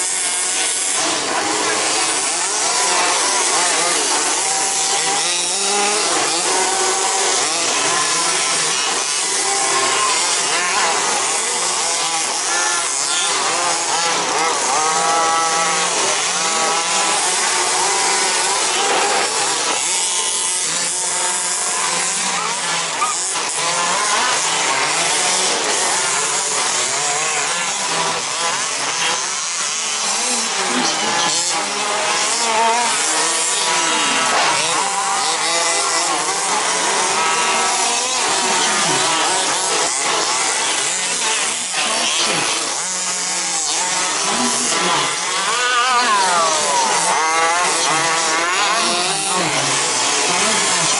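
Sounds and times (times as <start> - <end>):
remote control car motors whining: 0.0 - 50.9.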